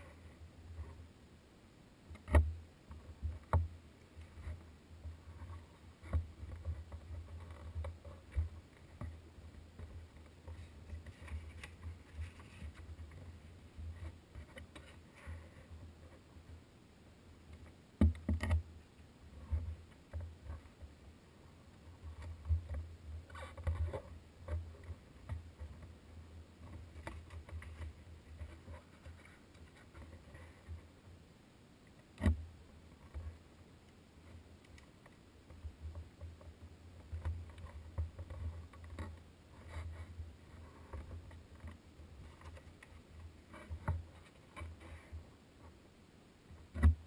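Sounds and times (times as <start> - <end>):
hands rubbing a notebook: 9.8 - 16.2.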